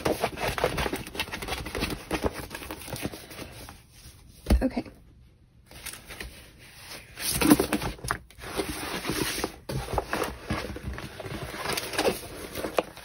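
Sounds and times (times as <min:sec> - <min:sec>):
plastic-covered canvas rustling: 0:05.7 - 0:13.0.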